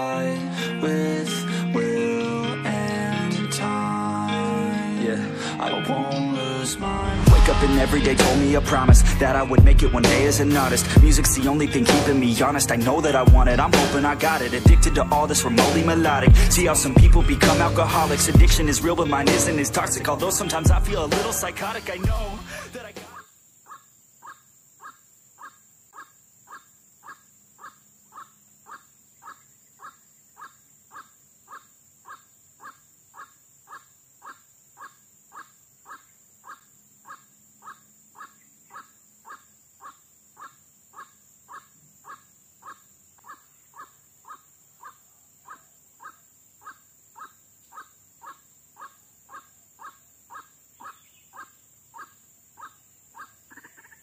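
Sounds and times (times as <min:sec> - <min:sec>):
waterhen calling: 0:22.5 - 0:54.0
faint high hiss: 0:22.7 - 0:54.0.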